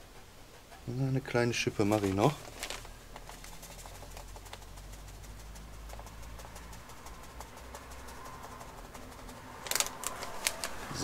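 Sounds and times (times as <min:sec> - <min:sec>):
wood dust pattering and scraping: 0:01.2 - 0:06.2, 0:09.6 - 0:11.0.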